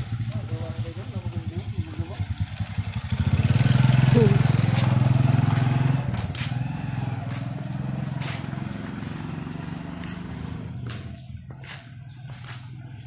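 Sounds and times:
engine running with low hum: 0.0s - 13.0s
footsteps on concrete: 4.3s - 13.0s.

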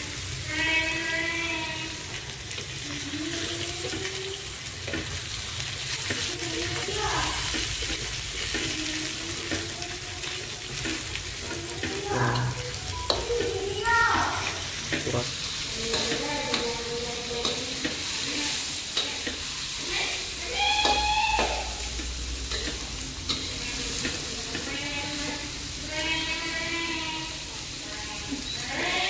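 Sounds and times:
beans sizzling in hot oil: 0.0s - 29.0s
metal spatula scraping a wok: 22.0s - 26.7s.

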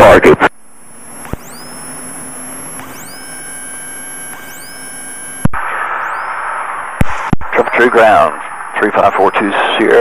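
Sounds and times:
faint steady tones: 0.0s - 10.0s
radio hiss: 0.0s - 10.0s
thin rising whistles: 1.4s - 2.0s, 6.0s - 6.4s.

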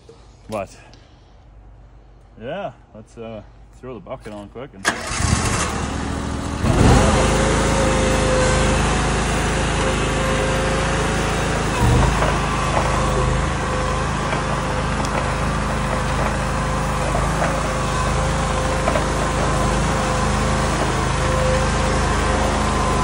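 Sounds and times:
tracked skid steer engine running: 4.9s - 23.0s.

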